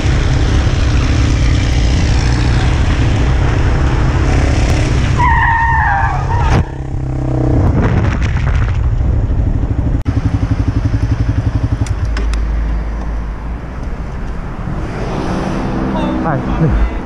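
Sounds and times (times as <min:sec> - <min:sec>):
motorcycle engine running: 0:00.0 - 0:05.1, 0:08.6 - 0:12.4.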